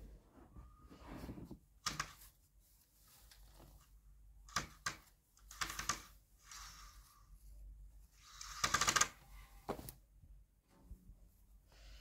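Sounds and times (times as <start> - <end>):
fabric rustling: 0.0 - 4.2, 9.4 - 10.2.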